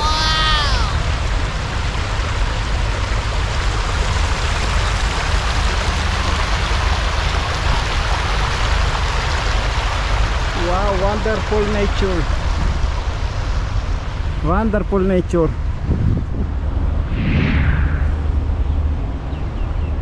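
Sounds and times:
water rushing over rocks: 0:00.0 - 0:15.5.

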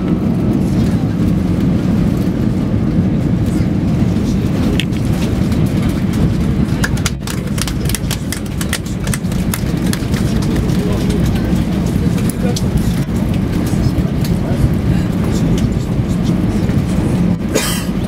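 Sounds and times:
airliner rolling low rumble: 0:00.0 - 0:18.0
sharp clicks and rattles: 0:04.5 - 0:16.8.

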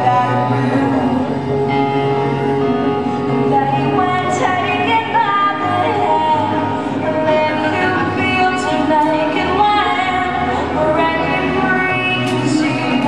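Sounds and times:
woman singing with music: 0:00.0 - 0:13.0.

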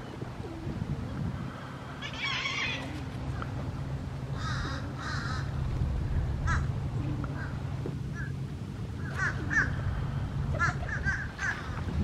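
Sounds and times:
steady low rumble: 0:00.0 - 0:12.0
birds cawing: 0:01.8 - 0:03.4, 0:04.3 - 0:05.6, 0:06.4 - 0:08.4, 0:09.0 - 0:12.0.

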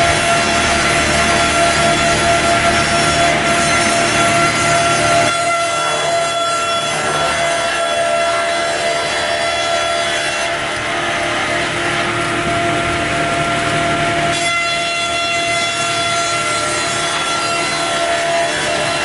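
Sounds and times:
saw machine hum: 0:00.0 - 0:19.0.

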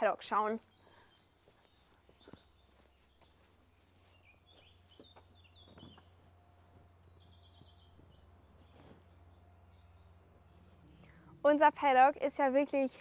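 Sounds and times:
songbirds chirping: 0:00.0 - 0:13.0
steady low hum: 0:00.6 - 0:12.7.

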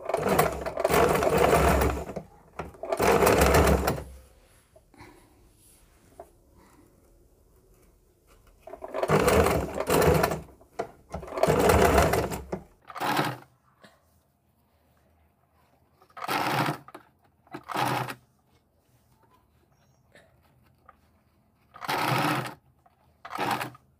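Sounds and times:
sewing machine stitching: 0:00.0 - 0:04.2, 0:08.6 - 0:13.5, 0:16.0 - 0:18.2, 0:21.1 - 0:23.9.

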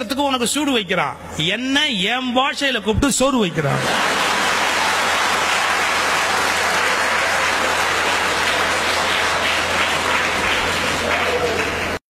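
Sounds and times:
audience applauding: 0:03.8 - 0:12.0.

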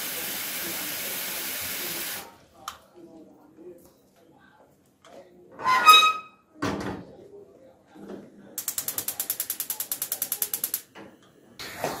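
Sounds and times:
spark igniter ticking: 0:08.6 - 0:10.9.

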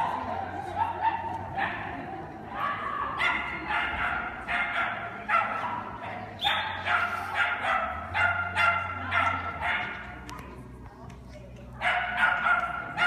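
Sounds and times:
dog barking: 0:03.0 - 0:10.1, 0:11.8 - 0:13.0.

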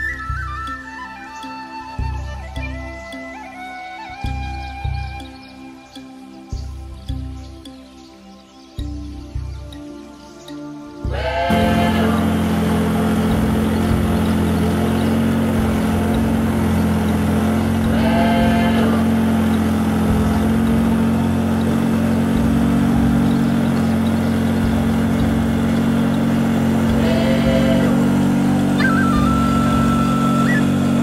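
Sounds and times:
boat motor running: 0:11.0 - 0:31.0
short high-pitched tones: 0:28.8 - 0:31.0.

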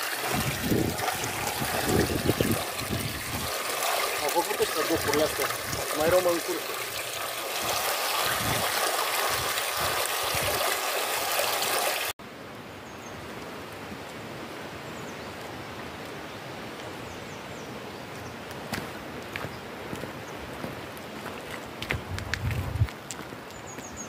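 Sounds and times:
spring water running: 0:00.0 - 0:12.2.

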